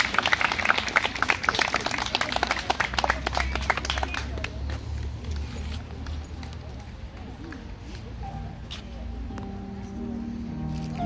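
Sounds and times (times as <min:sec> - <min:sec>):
audience applauding: 0:00.0 - 0:04.6.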